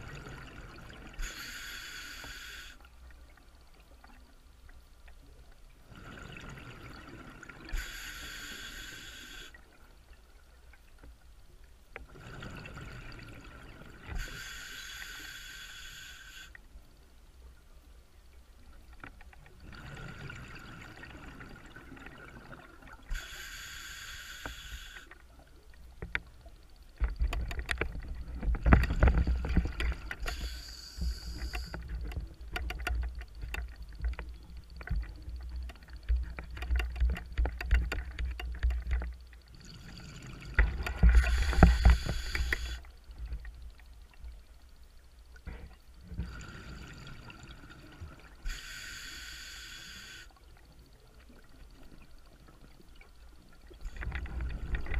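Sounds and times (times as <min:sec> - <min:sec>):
regulator hissing inhalations: 0:01.2 - 0:02.9, 0:07.7 - 0:09.6, 0:14.2 - 0:16.6, 0:23.1 - 0:25.2, 0:30.2 - 0:31.9, 0:41.1 - 0:42.9, 0:48.4 - 0:50.4.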